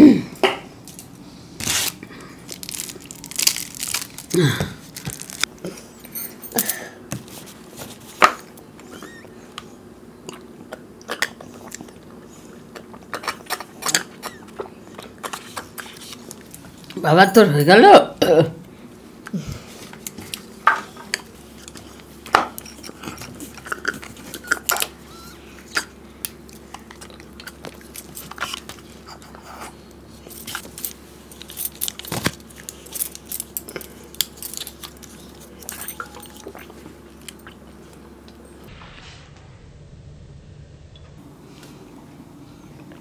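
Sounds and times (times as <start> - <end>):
packaging clicking and squeezed: 1.6 - 5.5.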